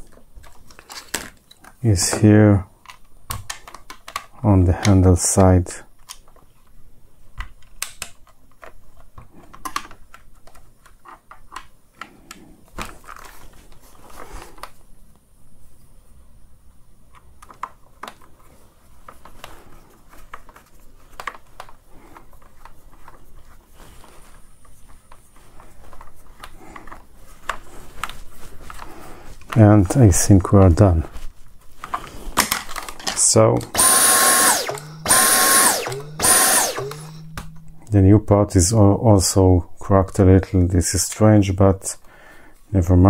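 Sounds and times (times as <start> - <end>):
plastic being handled: 12.6 - 14.9, 17.3 - 33.7
screwdriver turning screw in plastic: 32.4 - 37.8.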